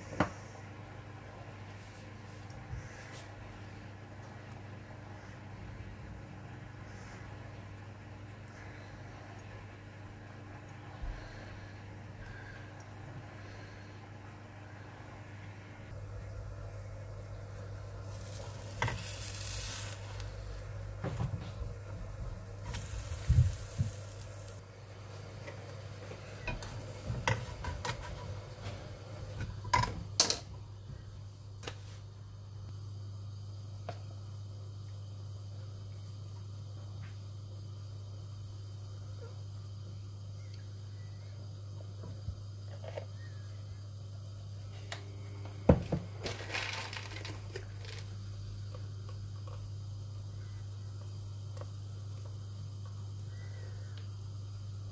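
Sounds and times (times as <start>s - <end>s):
steady low hum: 0.0s - 54.9s
pancake sizzling in a pan: 17.7s - 28.6s, 46.2s - 54.9s
plastic packet crinkling: 46.2s - 48.1s.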